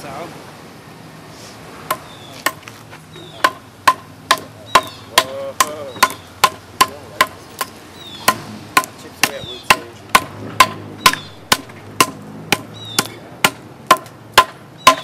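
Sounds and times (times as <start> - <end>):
adze chopping into wooden log: 3.4 - 15.0.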